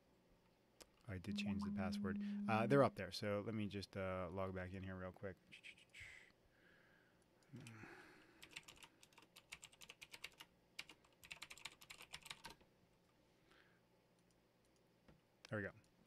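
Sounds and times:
typing on computer keyboard: 0:08.4 - 0:12.6.

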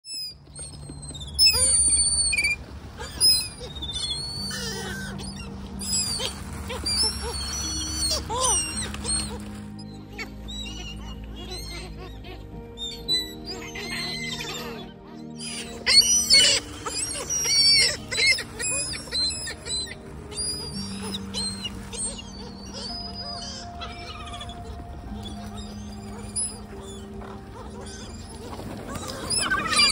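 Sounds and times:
gulls and crows calling: 0:00.1 - 0:29.9.

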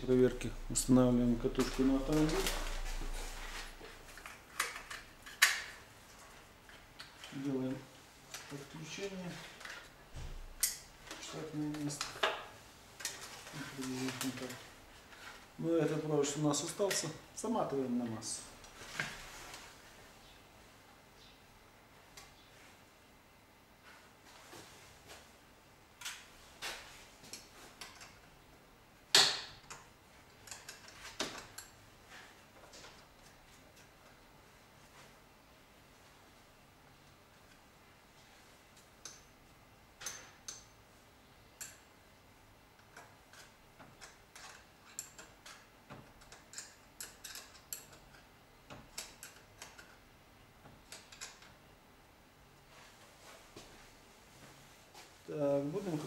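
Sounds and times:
wires and metal clips clicking: 0:01.5 - 0:07.5, 0:10.6 - 0:14.6, 0:29.1 - 0:31.8, 0:41.6 - 0:41.9, 0:42.8 - 0:51.6
faint clicks of wire connectors: 0:41.6 - 0:41.9.

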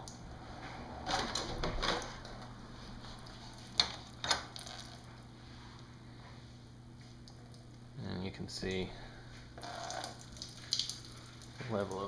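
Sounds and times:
water trickling onto concrete: 0:09.6 - 0:12.0.

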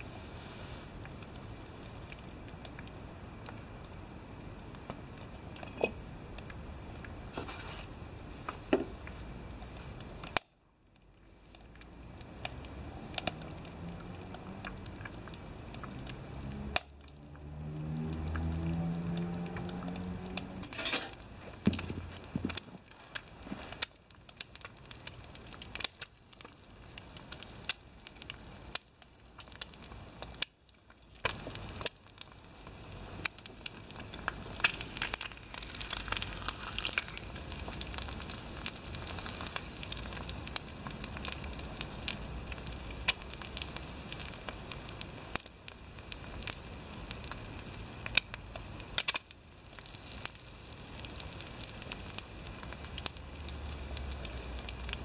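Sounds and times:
egg sizzling in a pan: 0:00.0 - 0:55.0
pops and crackles of burning wood: 0:00.0 - 0:55.0.

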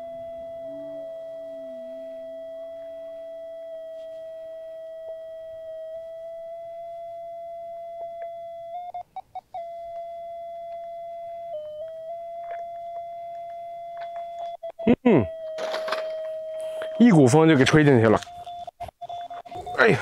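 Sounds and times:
steady electronic tone: 0:00.0 - 0:08.9
short beeps: 0:09.6 - 0:20.0.

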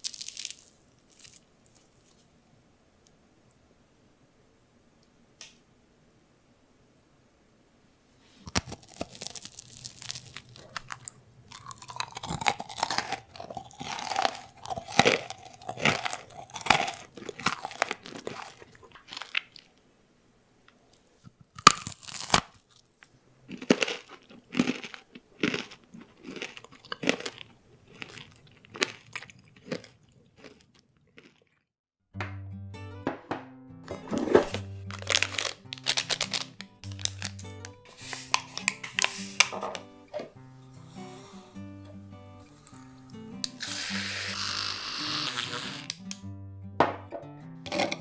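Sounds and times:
crunchy cookie bite: 0:00.0 - 0:02.2, 0:08.4 - 0:19.7, 0:21.5 - 0:31.6, 0:34.2 - 0:39.5
chewing: 0:08.5 - 0:19.8, 0:21.6 - 0:31.6.

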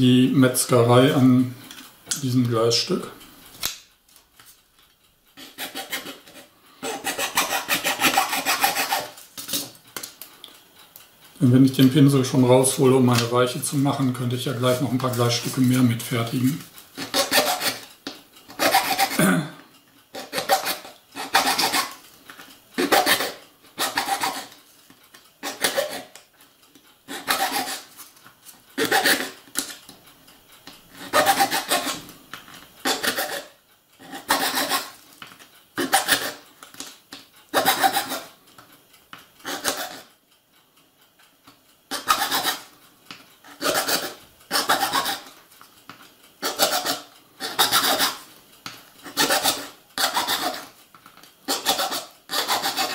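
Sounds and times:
blade scraping plastic: 0:51.5 - 0:52.9.

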